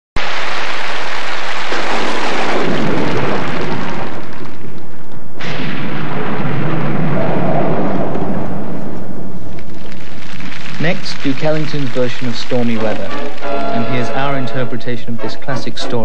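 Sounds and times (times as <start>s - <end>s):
rain: 0.2s - 5.1s, 9.4s - 13.8s
thunder clap: 0.2s - 14.9s
rolling thunder: 1.7s - 11.1s.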